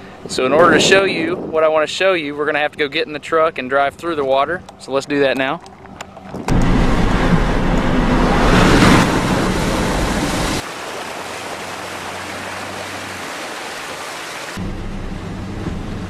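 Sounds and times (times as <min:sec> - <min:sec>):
tyres splashing through water: 0:05.1 - 0:14.6.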